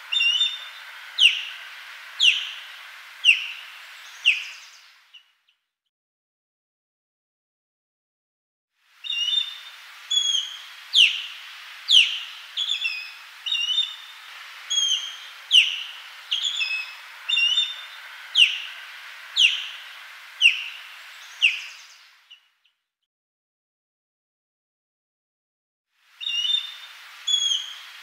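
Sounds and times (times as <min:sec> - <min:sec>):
bird whistled calls: 0:00.0 - 0:01.6, 0:02.2 - 0:04.8, 0:09.0 - 0:22.4, 0:26.2 - 0:28.0.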